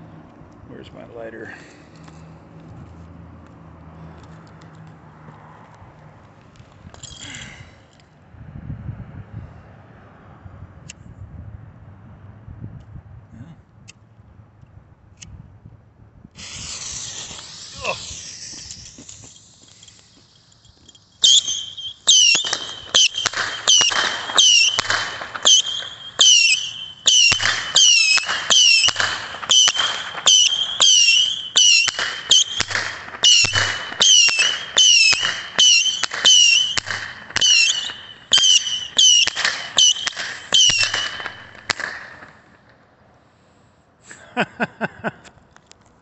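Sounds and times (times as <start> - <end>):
whistling firework missiles: 16.4 - 42.5.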